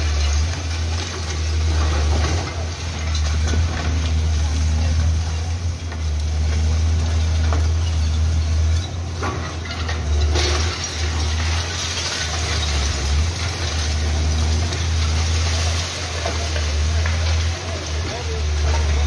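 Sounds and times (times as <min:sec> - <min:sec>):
excavator diesel engine running: 0:00.0 - 0:19.0
falling debris clatter: 0:00.0 - 0:19.0.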